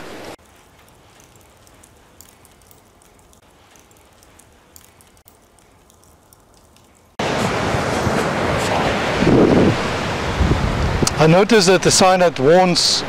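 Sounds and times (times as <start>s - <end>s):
fire crackling: 0.0s - 7.2s.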